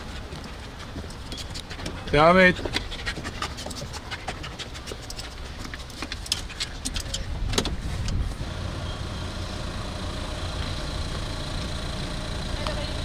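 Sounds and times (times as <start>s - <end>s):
car engine hum: 0.0s - 13.0s
dog claws scrabbling: 0.4s - 7.5s.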